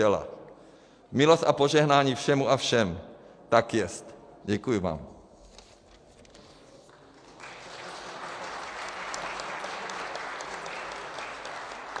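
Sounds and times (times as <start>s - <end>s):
applause: 6.8s - 12.0s.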